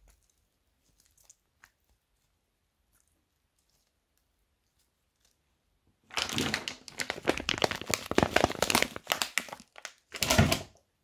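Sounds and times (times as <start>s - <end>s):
slime squelching and crackling: 0.0s - 11.0s.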